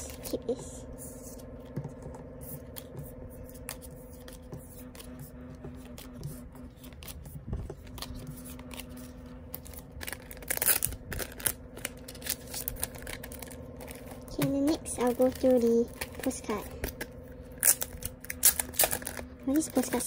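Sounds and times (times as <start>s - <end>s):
cards shuffled and tapped: 1.1s - 20.0s
plastic sleeve crinkling: 6.7s - 20.0s.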